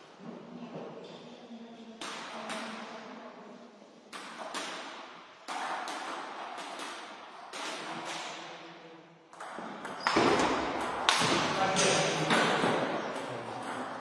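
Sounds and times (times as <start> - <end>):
table tennis ball knocks echoing: 9.3 - 14.0.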